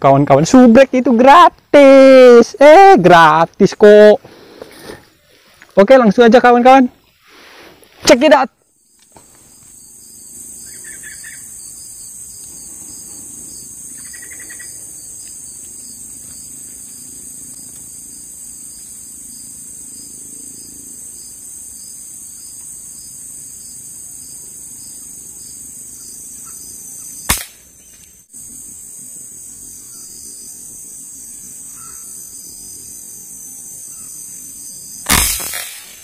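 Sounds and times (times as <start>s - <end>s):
high-pitched insect chorus: 0.0s - 36.0s
loud sharp crack: 27.3s - 27.6s, 35.0s - 36.0s.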